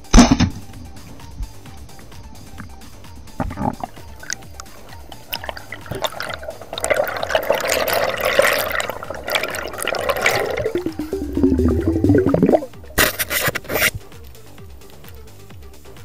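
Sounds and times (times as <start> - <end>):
underwater rushing and bubbling: 2.5 - 13.7.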